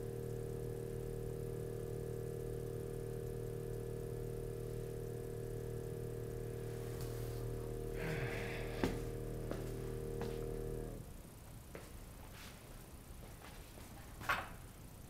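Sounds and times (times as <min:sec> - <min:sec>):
electric buzz of string vibrator: 0:00.0 - 0:11.7.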